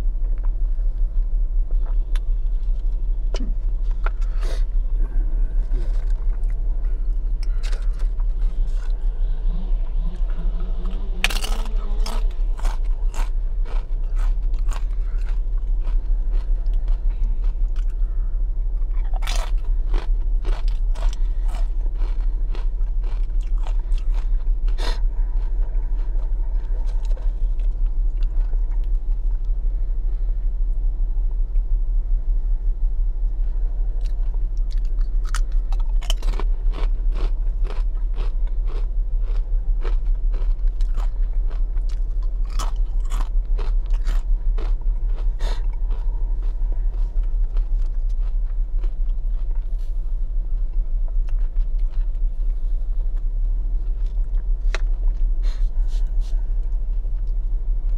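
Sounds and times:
steady low hum: 0.0 - 57.9
person crunching chips: 5.6 - 9.3, 9.9 - 18.2, 18.8 - 29.0, 34.0 - 50.0.

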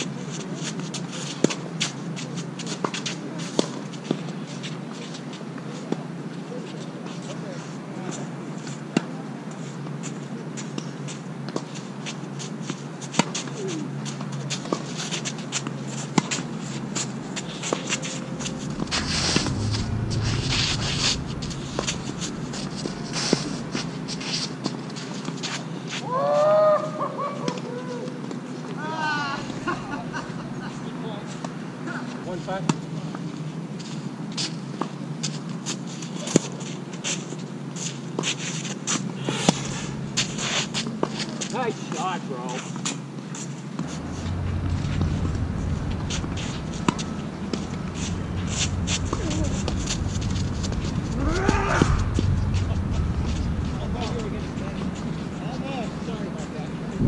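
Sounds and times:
rushing noise: 17.1 - 24.9, 39.2 - 40.8, 43.8 - 57.0.

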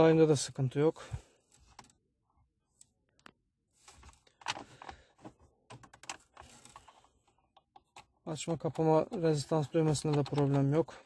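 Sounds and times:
plastic knobs clicking: 4.3 - 10.9.

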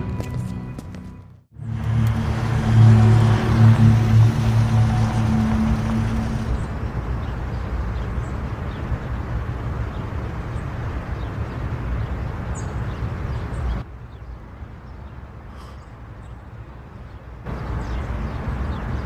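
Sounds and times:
low rumble inside car: 1.6 - 7.7
car idling: 1.6 - 8.8.

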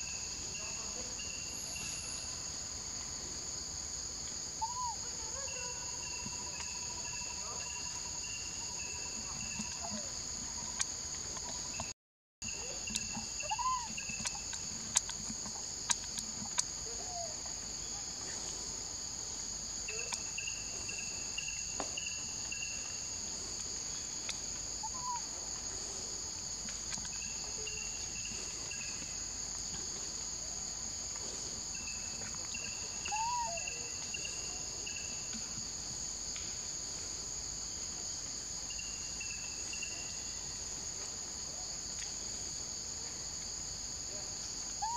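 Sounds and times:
insect chorus: 0.0 - 44.9.

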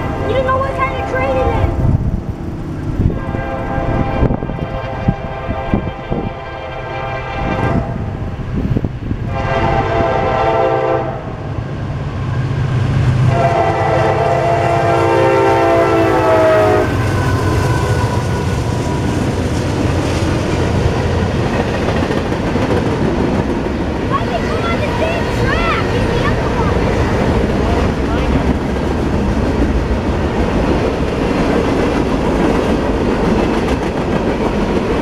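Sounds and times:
steady low rumble: 0.0 - 9.5, 16.9 - 35.0
train cars rolling: 0.0 - 35.0
locomotive air horn blasts: 3.2 - 8.0, 9.2 - 11.4, 13.3 - 18.2.

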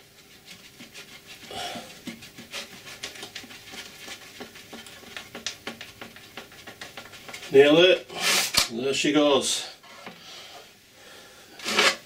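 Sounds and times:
man panting: 1.4 - 2.1.

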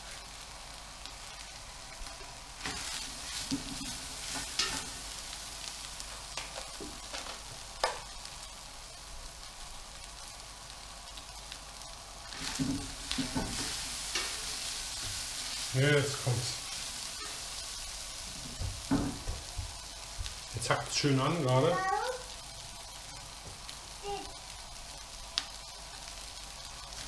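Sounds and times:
meat sizzling in a pot: 0.0 - 27.0.

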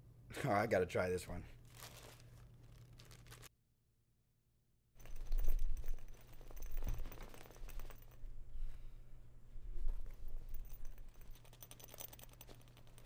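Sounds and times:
rustling and handling noises: 1.5 - 3.5, 5.0 - 13.0.

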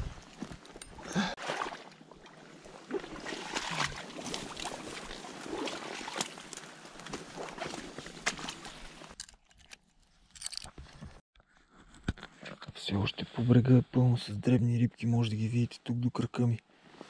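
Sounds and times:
boots sloshing in water: 0.2 - 9.2.

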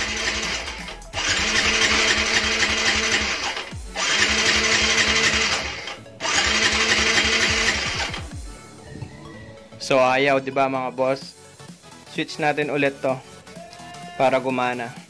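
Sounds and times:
electric starter cranking engine: 0.0 - 8.5.

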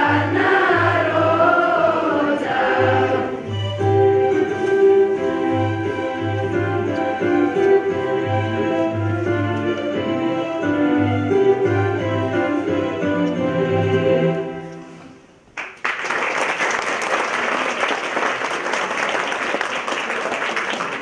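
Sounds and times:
choir singing with piano: 0.0 - 15.0
audience applause: 15.6 - 21.0.

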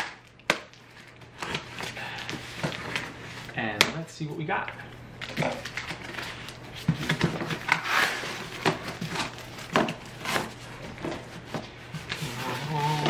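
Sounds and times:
cardboard box scraping: 10.2 - 13.0.

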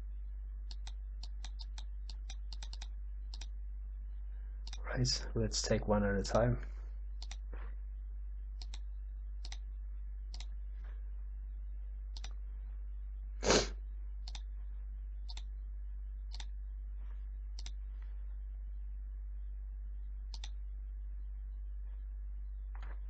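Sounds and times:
low electrical hum: 0.0 - 23.0
computer mouse clicks: 0.7 - 3.5, 4.6 - 4.8, 7.2 - 7.5, 8.6 - 9.6, 10.3 - 10.5, 12.1 - 12.4, 14.2 - 14.5, 15.3 - 15.5, 16.3 - 16.5, 17.6 - 17.8, 20.3 - 20.6.

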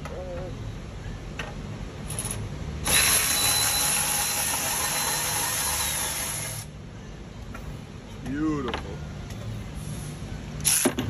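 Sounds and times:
power tool whining: 2.8 - 6.7.

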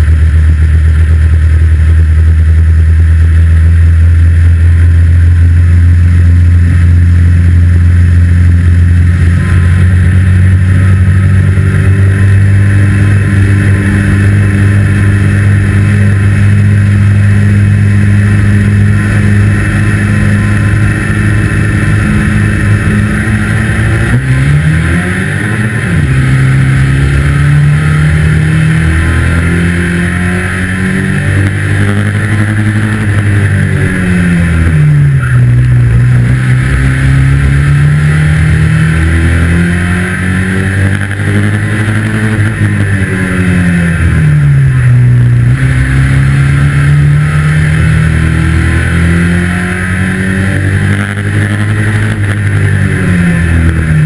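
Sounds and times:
racing car engine revving: 0.0 - 54.0.

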